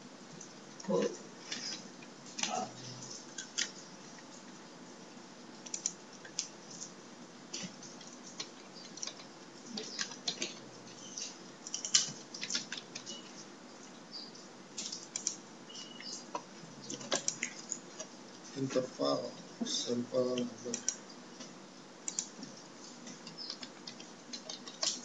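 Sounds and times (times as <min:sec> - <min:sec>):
keyboard typing: 0:00.4 - 0:04.5, 0:05.6 - 0:07.0, 0:07.6 - 0:13.5, 0:14.7 - 0:18.1, 0:20.3 - 0:25.0.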